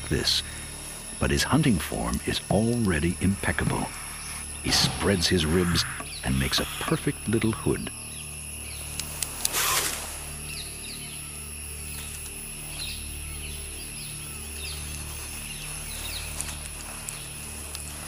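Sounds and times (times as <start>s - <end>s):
insect drone: 0.0s - 18.0s
low pulsing throb: 0.7s - 8.9s
faint bird chirps: 3.8s - 9.0s.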